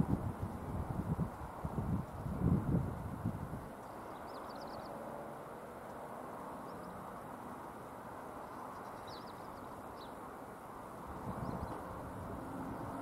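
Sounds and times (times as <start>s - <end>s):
bird chirping: 3.8s - 5.0s, 6.6s - 7.0s, 8.4s - 10.2s, 11.2s - 12.0s.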